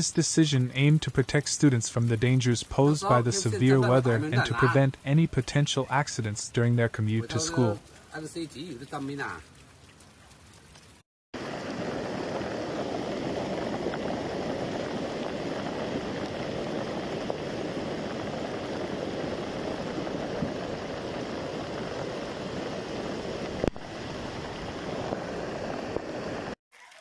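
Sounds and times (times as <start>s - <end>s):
water pouring over a bank: 0.0s - 27.0s
floodwater rushing and churning: 7.0s - 26.6s.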